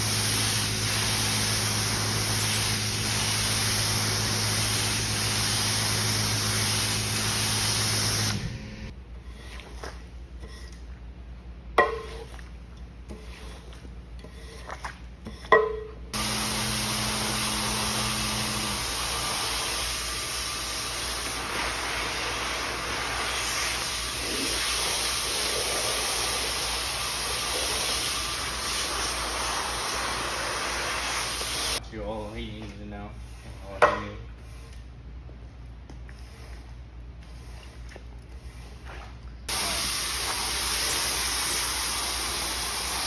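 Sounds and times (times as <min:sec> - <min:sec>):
water spraying from hose nozzle: 0:00.0 - 0:08.4, 0:16.2 - 0:31.8, 0:39.5 - 0:43.0.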